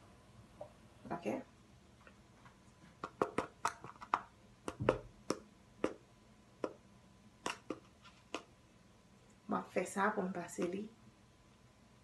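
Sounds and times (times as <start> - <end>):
hands tapping plastic bottle: 3.0 - 6.0.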